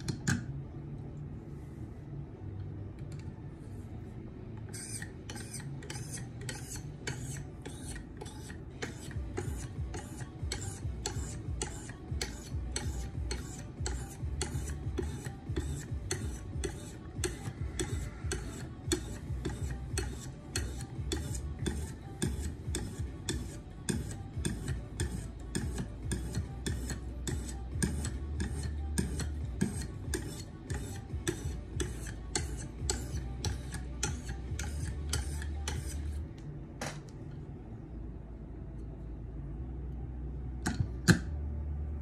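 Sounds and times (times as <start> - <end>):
sharpening stone on knife edge: 4.7 - 36.2.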